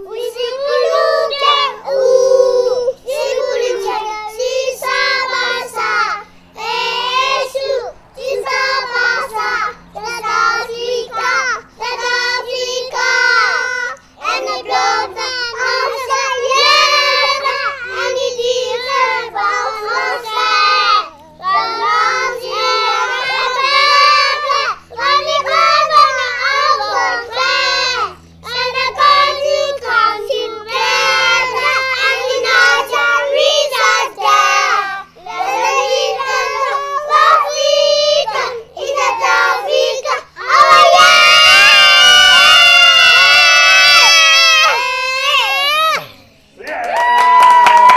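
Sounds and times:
children singing: 0:00.0 - 0:46.1
steady low hum: 0:00.0 - 0:46.7.

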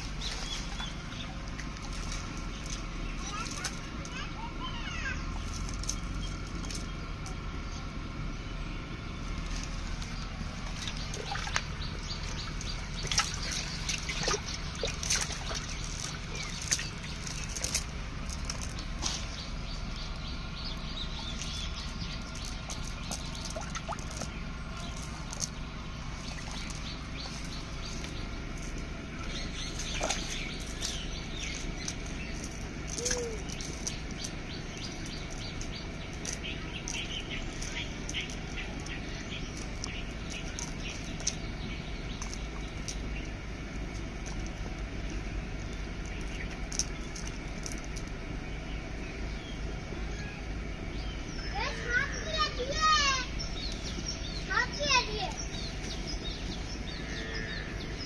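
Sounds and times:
wet net rustling and slapping: 0:00.0 - 0:03.9, 0:09.4 - 0:20.2, 0:21.2 - 0:48.2
birds chirping: 0:00.0 - 0:58.0.

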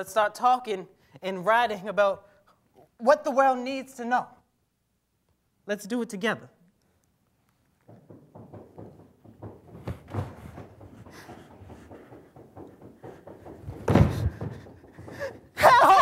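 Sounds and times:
footsteps on stage: 0:07.4 - 0:15.6
loud thump: 0:07.9 - 0:15.2.

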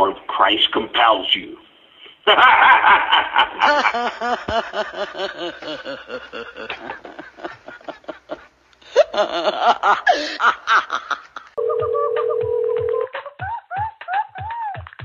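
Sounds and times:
raspy cackling laughter: 0:02.3 - 0:11.6
telephone ringing tone: 0:11.6 - 0:13.1.

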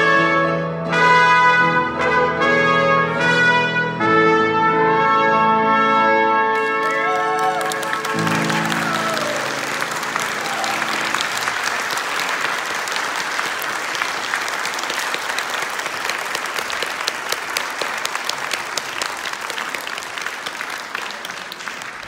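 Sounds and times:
audience applauding: 0:06.6 - 0:22.0.

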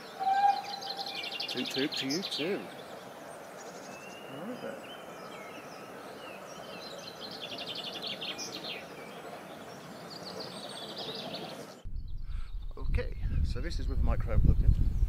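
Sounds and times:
bird trill: 0:00.0 - 0:03.0
birds chirping and singing: 0:00.0 - 0:13.0
outdoor background hiss: 0:00.0 - 0:14.6.

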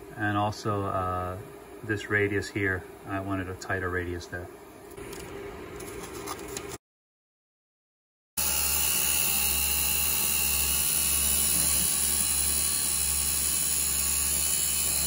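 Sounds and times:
milling machine whining: 0:08.4 - 0:15.0.

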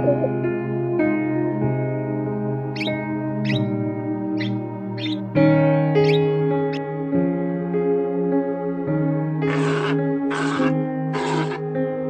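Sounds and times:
background music with sustained chords: 0:00.0 - 0:12.0
sea lion barking: 0:02.8 - 0:03.7, 0:04.4 - 0:05.2, 0:09.4 - 0:11.6.

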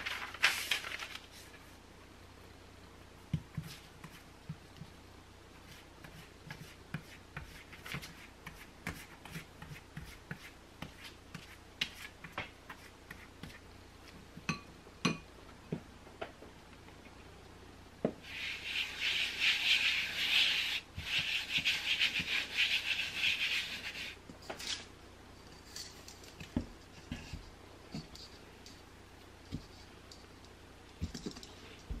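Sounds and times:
flour rubbed on cutting board: 0:18.2 - 0:24.2.

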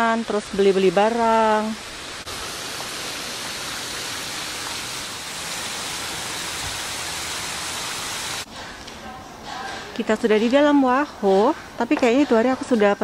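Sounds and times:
steady rushing hiss: 0:00.0 - 0:10.0.

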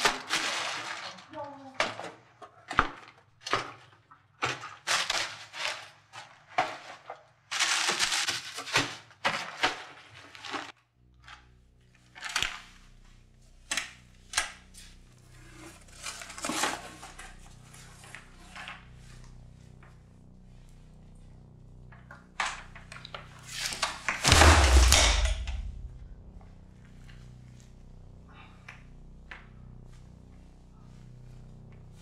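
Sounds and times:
steady low hum: 0:11.0 - 0:32.0.

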